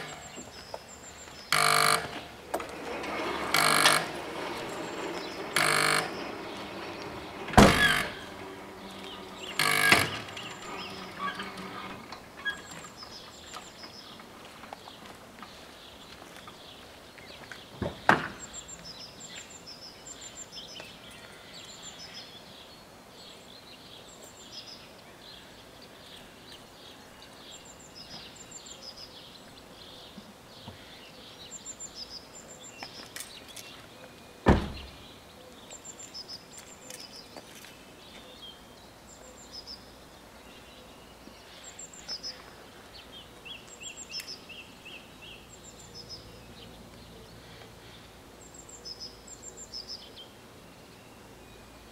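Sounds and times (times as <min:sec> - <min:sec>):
birds chirping: 0:00.0 - 0:51.9
loud sharp knocks: 0:07.5 - 0:08.2.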